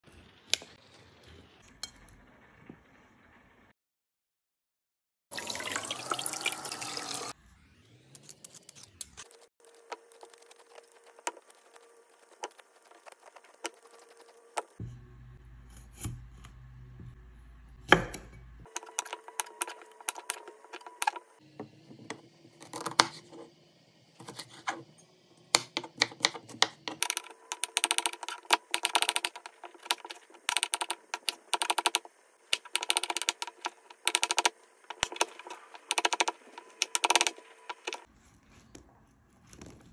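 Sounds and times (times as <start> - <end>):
knife chopping on wooden board: 17.9 - 21.2.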